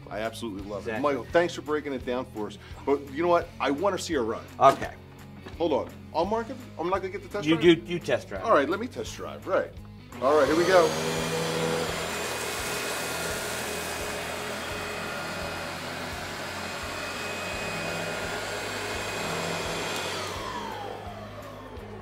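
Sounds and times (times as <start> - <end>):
vacuum cleaner running: 10.1 - 22.0.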